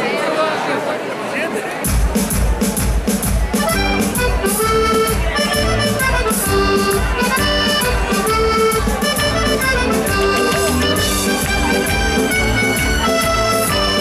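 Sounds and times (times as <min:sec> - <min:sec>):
keyboard beat and bass line: 0:01.9 - 0:14.0
button accordion playing a tune: 0:03.5 - 0:14.0.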